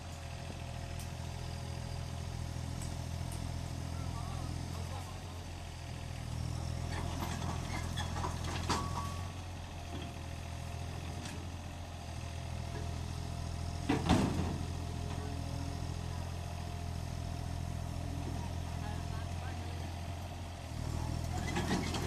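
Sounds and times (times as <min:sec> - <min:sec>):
diesel engine running: 0:00.0 - 0:22.0.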